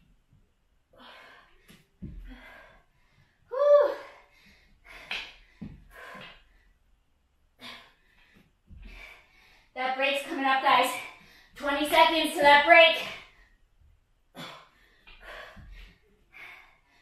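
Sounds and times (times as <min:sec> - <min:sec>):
woman breathing hard: 0:00.9 - 0:06.8, 0:07.6 - 0:09.8, 0:14.3 - 0:17.0.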